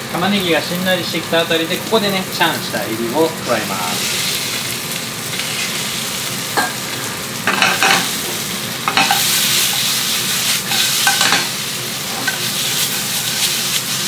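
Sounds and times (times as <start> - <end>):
food sizzling in oil: 0.0 - 14.0
metal tongs clinking and scraping: 8.9 - 9.8, 10.7 - 11.5, 12.1 - 12.6.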